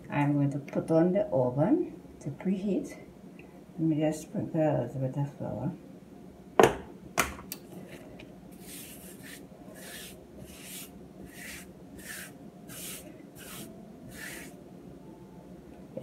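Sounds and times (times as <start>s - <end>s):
hands rubbing flour over dough: 7.8s - 14.6s.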